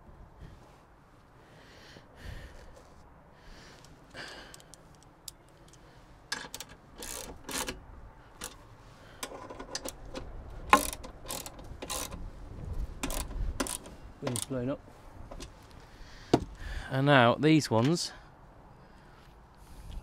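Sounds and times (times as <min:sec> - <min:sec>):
metal clicks and scrapes: 0:04.5 - 0:12.3, 0:13.0 - 0:14.6
wind rumble on microphone: 0:11.5 - 0:14.1.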